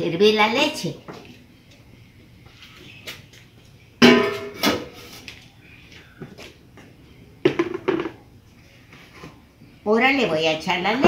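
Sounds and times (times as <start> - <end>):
metal pot clanking: 4.0 - 4.7.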